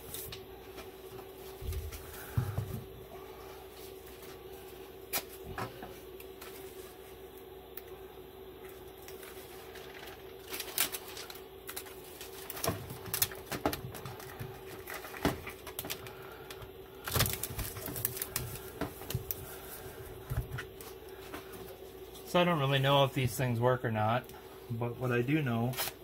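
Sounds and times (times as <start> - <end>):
steady hum: 0.0 - 26.0
foil tape crinkling: 9.0 - 20.0, 25.7 - 26.0.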